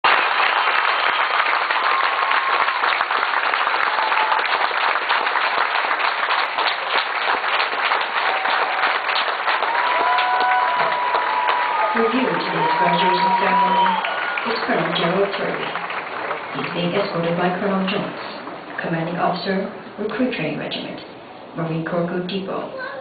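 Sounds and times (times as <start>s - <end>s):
crowd applauding: 0.0s - 17.4s.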